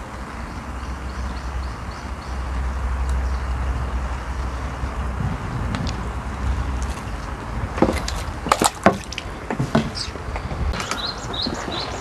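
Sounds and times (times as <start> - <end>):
low rumble: 0.0 - 8.4.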